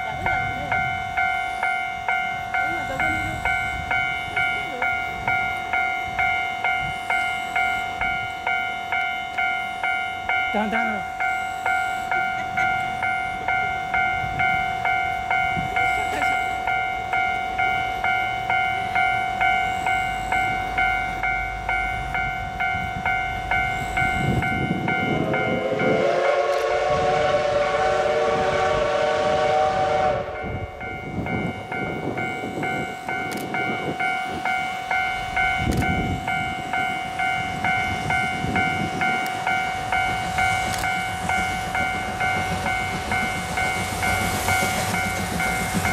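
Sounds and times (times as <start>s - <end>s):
steam locomotive exhaust chuffs: 0.0s - 45.9s
steam whistle blast: 25.2s - 31.0s.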